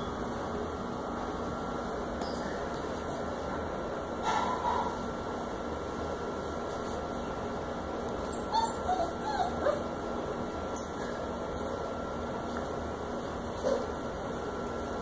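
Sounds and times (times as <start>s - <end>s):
puppies whimpering: 8.3s - 9.9s.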